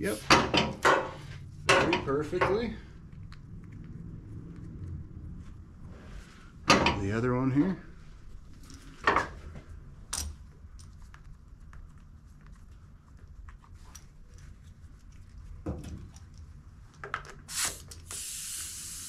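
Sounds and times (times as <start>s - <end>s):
short hiss of air: 17.5s - 19.0s.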